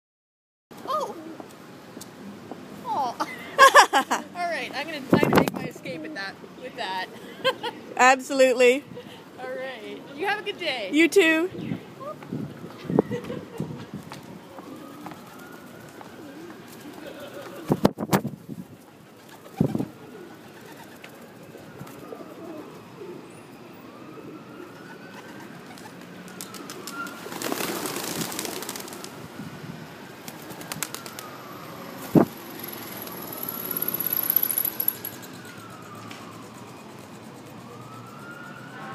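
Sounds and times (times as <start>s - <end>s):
faint wailing siren: 11.2s - 17.8s, 19.0s - 28.0s, 28.7s - 38.9s
pigeons cooing: 16.2s - 17.8s, 19.1s - 23.4s.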